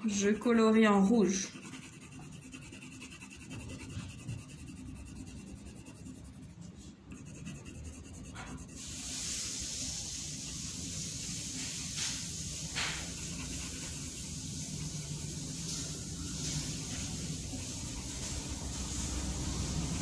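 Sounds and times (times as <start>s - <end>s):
pencil scratching on paper: 0.0s - 10.6s, 11.3s - 20.0s.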